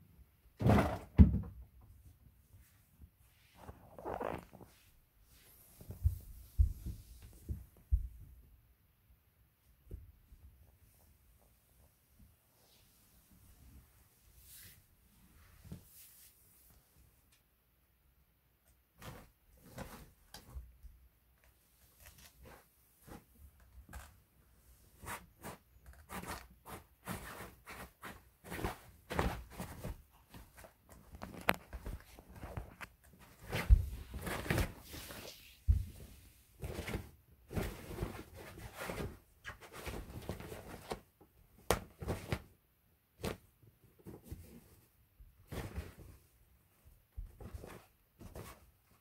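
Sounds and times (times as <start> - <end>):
cats pawing and bumping tunnel: 0.5 - 1.9, 18.8 - 49.0
fabric tunnel rustling: 26.2 - 41.0.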